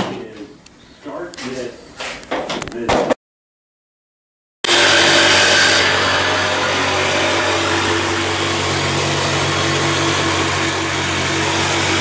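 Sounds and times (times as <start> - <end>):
electric power saw running: 4.6 - 12.0.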